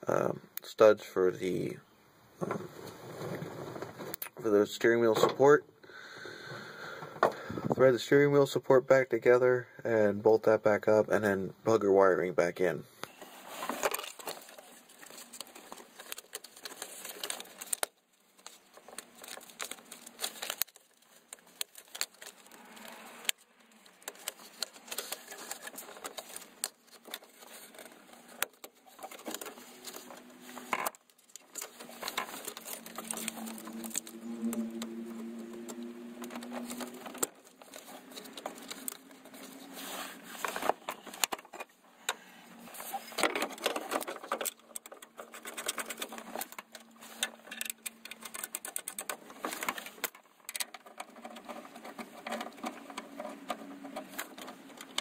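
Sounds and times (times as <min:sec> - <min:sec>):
small clicks and rattles: 0:13.6 - 0:39.7, 0:40.4 - 0:42.2, 0:42.8 - 0:55.0.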